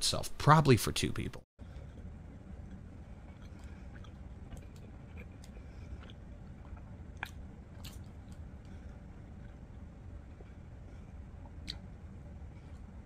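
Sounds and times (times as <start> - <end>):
steady low hum: 0.0 - 13.0
person chewing: 1.6 - 12.0
mouth clicks: 11.6 - 11.9.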